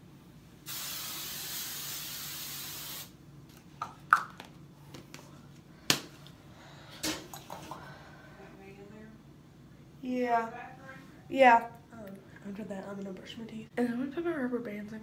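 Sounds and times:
aerosol can spraying: 0:00.7 - 0:03.2.

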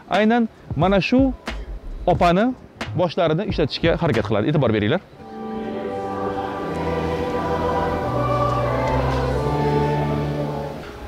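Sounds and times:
choral music: 0:05.1 - 0:11.0.

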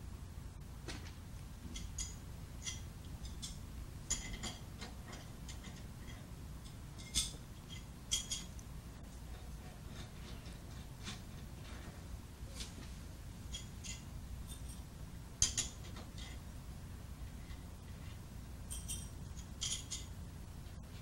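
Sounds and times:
wrenches knocking on metal: 0:00.9 - 0:08.5, 0:18.7 - 0:20.2
metal parts clinking: 0:01.7 - 0:08.6, 0:17.4 - 0:20.2.

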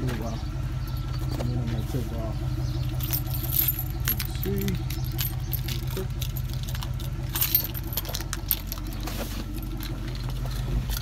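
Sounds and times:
steady low hum: 0:00.0 - 0:11.0
keys jangling: 0:02.9 - 0:11.0.

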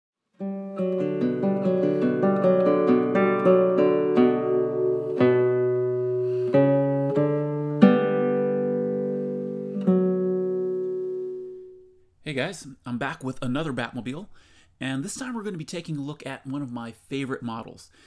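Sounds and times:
acoustic guitar music: 0:00.3 - 0:12.2.

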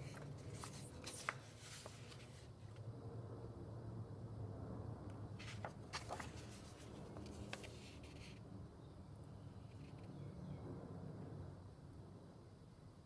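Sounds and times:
paper pages turning: 0:00.0 - 0:02.5, 0:05.4 - 0:08.4
faint low hum: 0:00.0 - 0:13.0.

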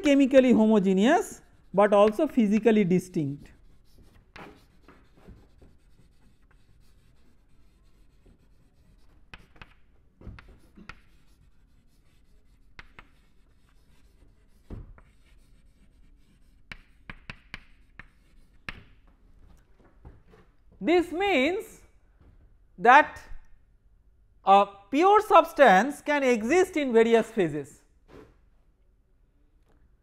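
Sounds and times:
chalk scratching on chalkboard: 0:00.1 - 0:19.0
chalk tapping on board: 0:00.4 - 0:02.7, 0:03.4 - 0:19.0.

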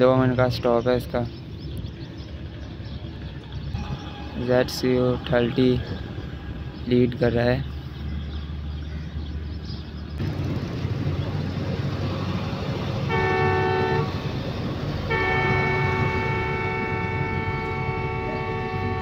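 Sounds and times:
low engine rumble: 0:00.0 - 0:19.0
locomotive horn blasts: 0:13.0 - 0:14.3, 0:15.0 - 0:19.0.

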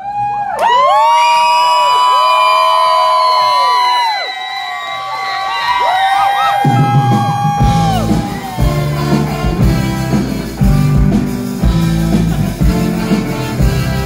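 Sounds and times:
drums with kick-drum beat: 0:06.4 - 0:14.0
electric guitar chords: 0:07.6 - 0:14.0.

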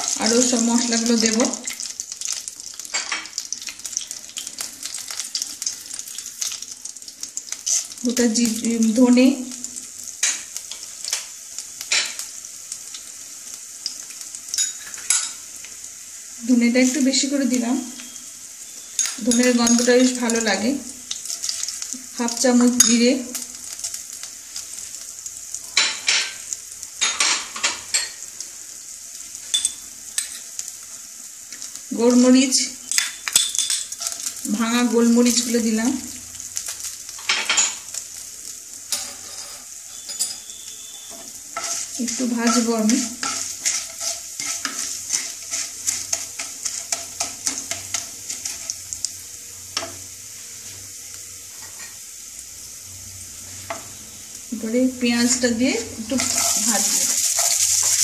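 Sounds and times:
oil crackles and pops: 0:00.0 - 0:08.6
spices sizzling in hot oil: 0:00.0 - 0:58.0
wooden spatula scraping and tapping: 0:41.1 - 0:48.8, 0:56.2 - 0:58.0.

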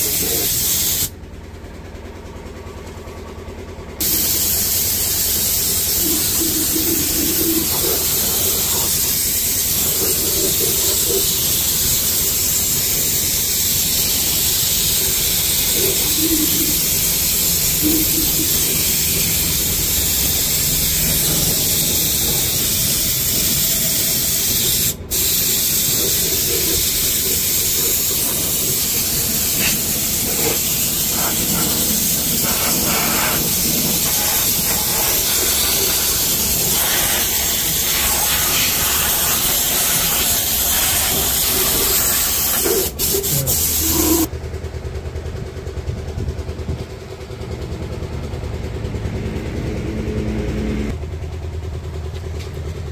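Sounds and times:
spray gun hissing: 0:00.0 - 0:01.1, 0:04.0 - 0:44.3.

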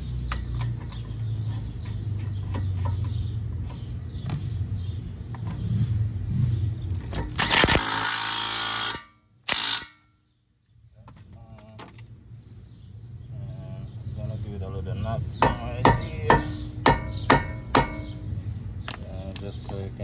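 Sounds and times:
impact wrench hammering: 0:07.1 - 0:10.1, 0:15.4 - 0:18.3.

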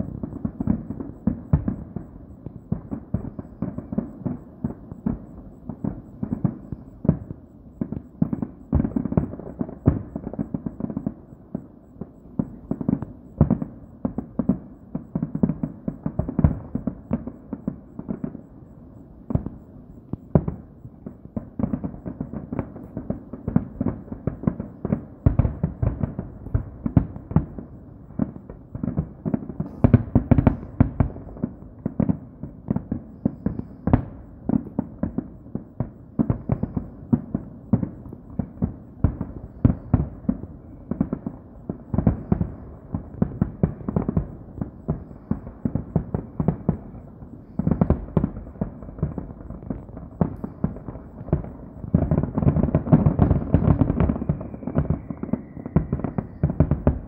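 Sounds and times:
fireworks bangs and crackles: 0:00.0 - 0:57.0
faint falling whistle: 0:54.2 - 0:56.6.

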